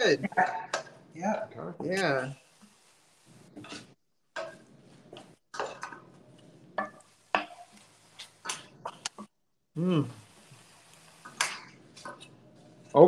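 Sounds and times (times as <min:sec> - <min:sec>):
utensil scraping against a pan: 0:03.5 - 0:09.2.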